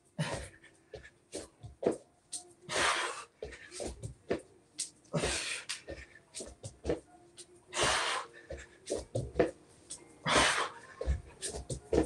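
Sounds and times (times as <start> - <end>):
heavy breathing: 0.1 - 1.6, 2.7 - 4.4, 5.0 - 6.6, 7.7 - 9.3, 10.2 - 11.7
forceful exhalations: 5.1 - 6.4
hands and feet thudding on mat: 7.8 - 9.6, 10.3 - 12.0.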